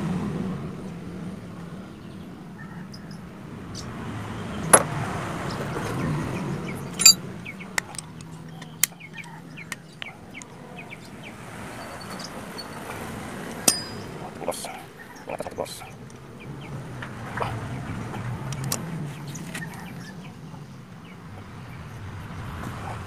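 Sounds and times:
metallic clicks and knocks: 7.0s - 7.2s.

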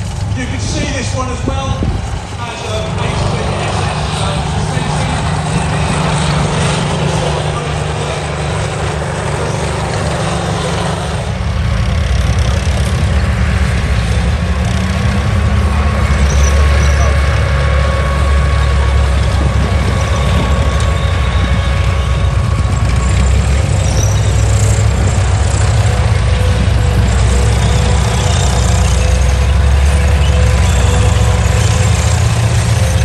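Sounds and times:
tank engines rumbling: 0.0s - 33.0s.

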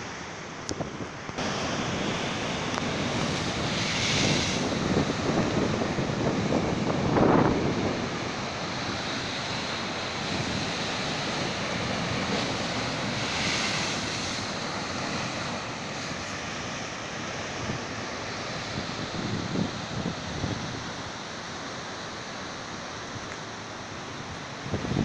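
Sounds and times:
wind on microphone: 0.7s - 16.9s, 18.6s - 21.0s, 24.2s - 25.0s
surf breaking against rocks: 8.9s - 17.8s.

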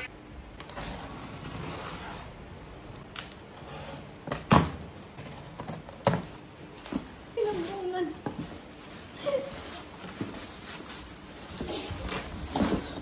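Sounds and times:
cardboard and tape rustling: 3.7s - 13.0s.

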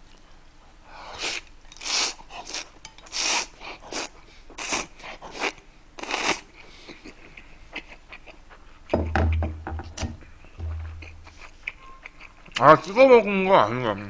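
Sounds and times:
person slurping noodles: 1.1s - 6.4s.

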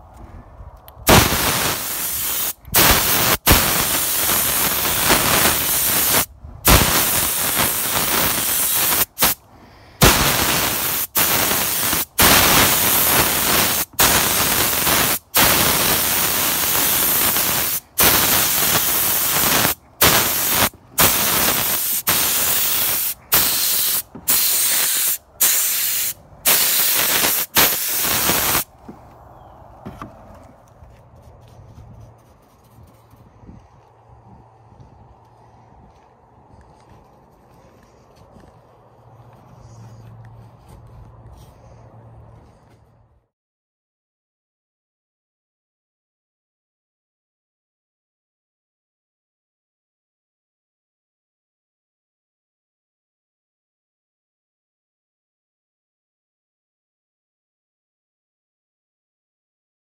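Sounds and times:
paint spray gun hissing: 1.1s - 9.4s, 10.0s - 28.7s.

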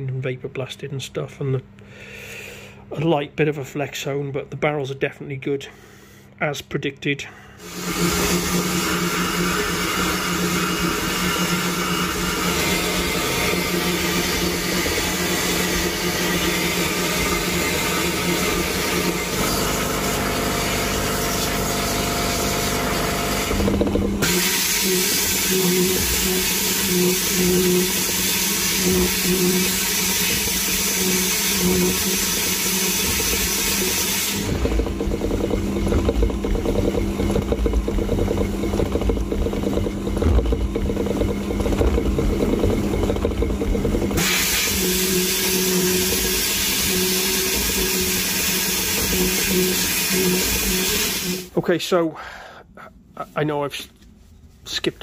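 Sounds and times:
vapour blasting gun hissing: 24.2s - 27.3s
low rumbling machine noise: 34.4s - 44.2s
constant machine hum: 34.4s - 45.0s.

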